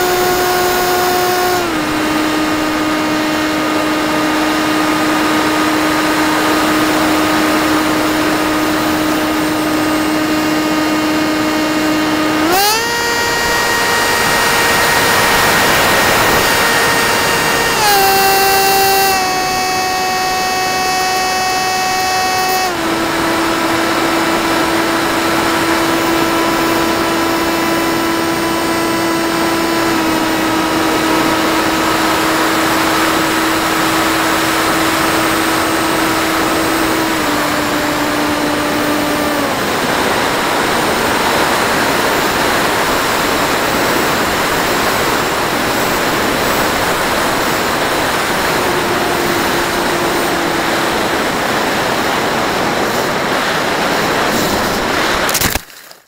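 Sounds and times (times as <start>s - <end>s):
electric motor and propeller whine: 0.0s - 56.0s
heavy wind rush: 29.2s - 55.4s.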